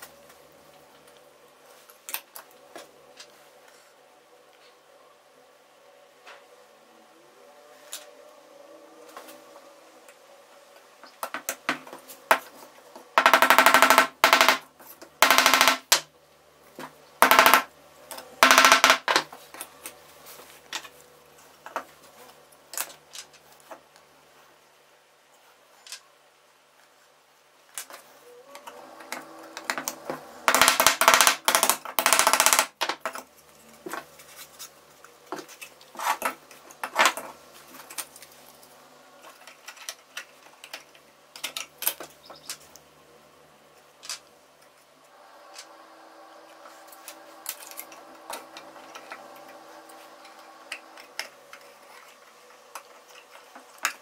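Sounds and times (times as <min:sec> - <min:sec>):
wood parts clicking and rattling: 0:13.2 - 0:14.6, 0:17.2 - 0:19.9, 0:29.0 - 0:33.3, 0:39.2 - 0:42.8, 0:46.5 - 0:54.0.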